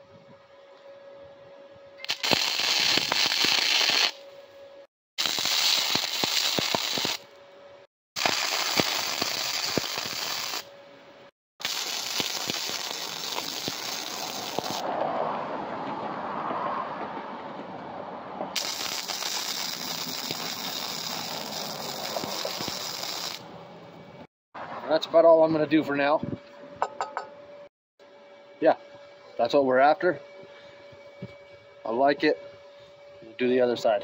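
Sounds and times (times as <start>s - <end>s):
welding arc crackling hiss: 2.0s - 4.2s, 5.2s - 7.2s, 8.2s - 10.7s, 11.6s - 14.8s, 18.6s - 23.5s.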